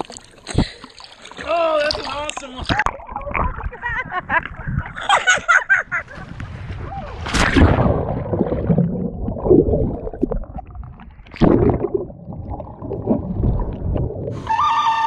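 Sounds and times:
muffled underwater bubbles gurgling: 0:07.7 - 0:14.4
music: 0:14.4 - 0:15.0.

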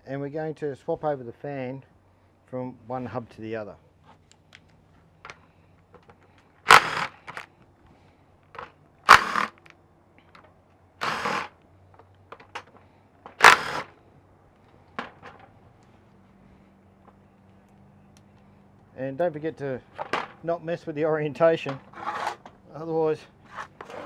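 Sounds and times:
impact driver hammering: 0:06.7 - 0:07.4, 0:09.1 - 0:09.6, 0:11.0 - 0:11.5, 0:13.3 - 0:13.9.

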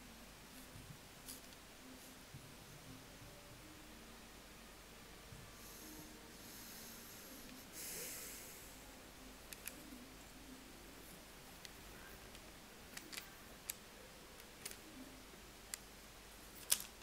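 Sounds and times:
soft breathing: 0:05.4 - 0:09.1
small clicks: 0:16.6 - 0:17.0.

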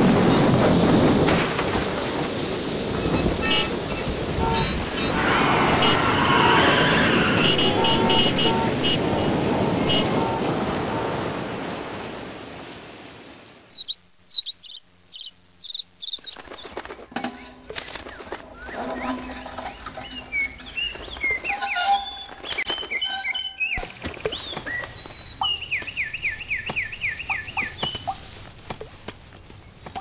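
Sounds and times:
storm wind: 0:00.0 - 0:13.9, 0:18.4 - 0:22.7
small birds chirping: 0:13.7 - 0:28.4.

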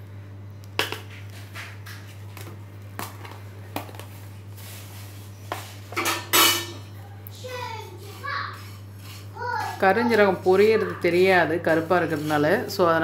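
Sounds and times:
spoon clinking on metal cookware: 0:06.0 - 0:06.9.

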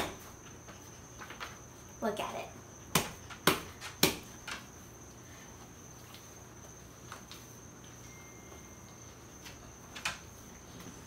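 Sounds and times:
steady high-pitched tone: 0:05.2 - 0:11.0.

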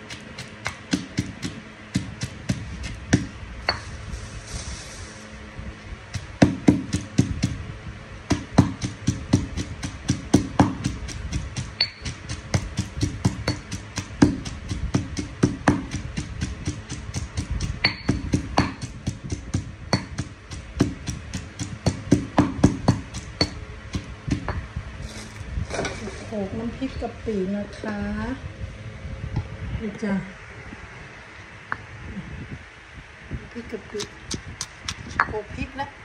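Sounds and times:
pestle pounding in stone mortar: 0:00.0 - 0:03.9, 0:06.1 - 0:07.6, 0:08.3 - 0:25.3, 0:34.0 - 0:35.3.

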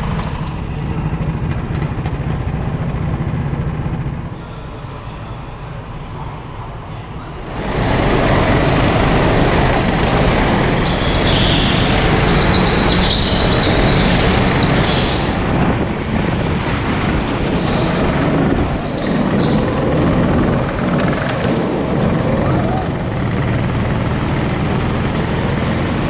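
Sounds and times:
go-kart engines running: 0:00.0 - 0:06.1, 0:07.2 - 0:26.0.

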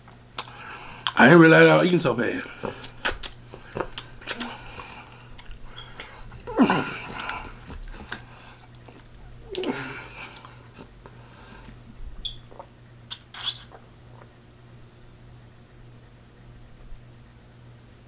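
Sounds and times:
close chewing and mouth smacking: 0:00.1 - 0:01.2, 0:02.4 - 0:14.4.

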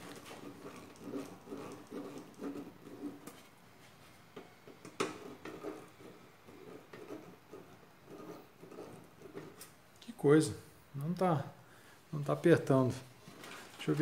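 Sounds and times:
screwdriver scraping on metal: 0:00.0 - 0:03.4, 0:04.8 - 0:09.8.

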